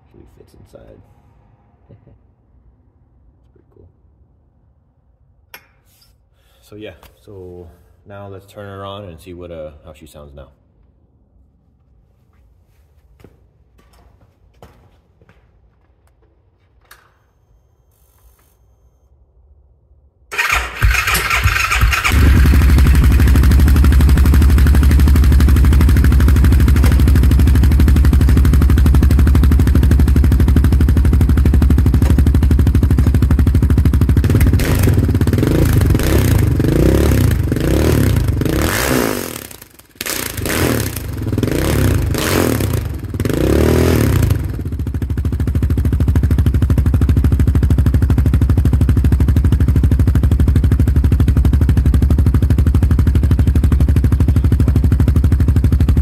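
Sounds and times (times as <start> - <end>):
electric starter cranking: 20.3 - 23.4
engine idling and revving: 20.4 - 56.0.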